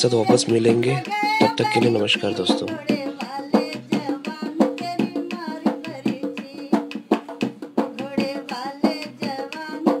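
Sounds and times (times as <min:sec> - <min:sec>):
person singing: 0:00.0 - 0:06.9
hand drum quick steady beat: 0:00.0 - 0:10.0.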